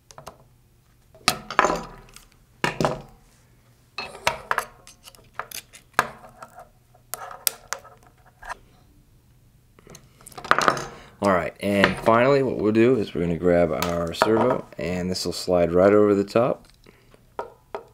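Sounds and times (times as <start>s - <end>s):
metal pieces set down on wood: 1.3s - 3.1s, 10.4s - 11.0s.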